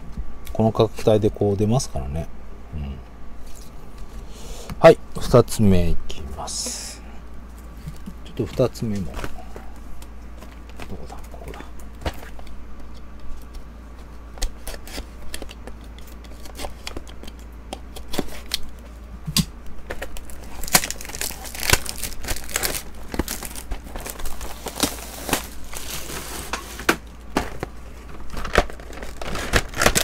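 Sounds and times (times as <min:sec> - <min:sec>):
plastic wrap tearing and crinkling: 0:19.9 - 0:30.0.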